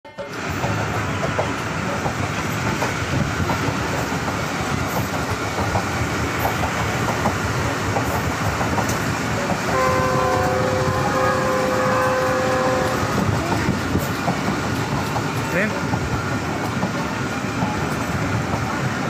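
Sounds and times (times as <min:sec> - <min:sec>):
train wheels rumbling on rails: 0:00.1 - 0:19.0
train horn blast: 0:09.7 - 0:13.3.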